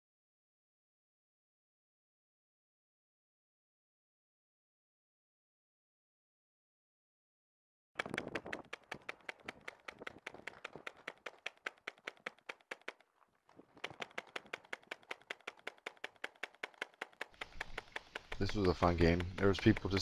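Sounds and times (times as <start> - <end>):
paintball markers firing: 8.0 - 20.0.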